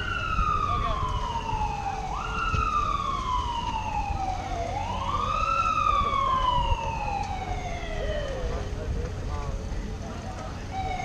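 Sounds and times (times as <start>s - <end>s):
fire truck siren wailing: 0.0s - 9.0s, 10.6s - 11.0s.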